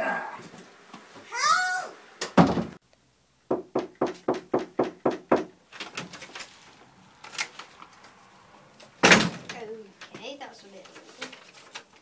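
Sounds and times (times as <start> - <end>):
knocking on wooden door: 3.5 - 5.5.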